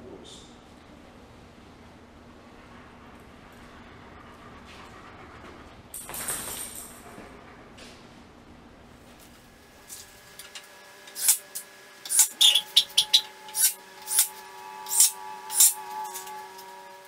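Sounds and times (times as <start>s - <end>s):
hand tool rasping wood: 12.0s - 17.0s.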